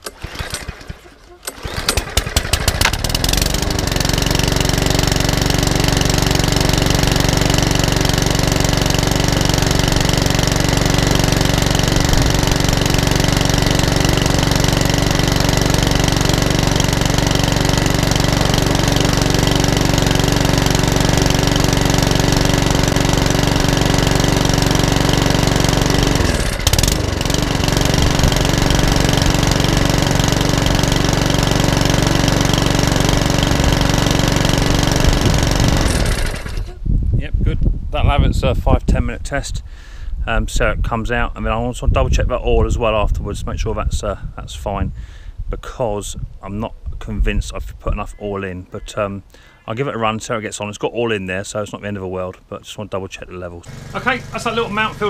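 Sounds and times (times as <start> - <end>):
lawnmower engine pull-started: 0.0 - 36.8, 53.6 - 55.0.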